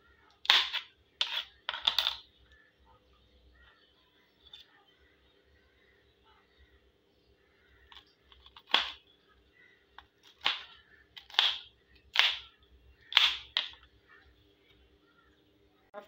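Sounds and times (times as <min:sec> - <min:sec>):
knife chopping on plastic board: 0:10.2 - 0:12.5, 0:13.1 - 0:13.8.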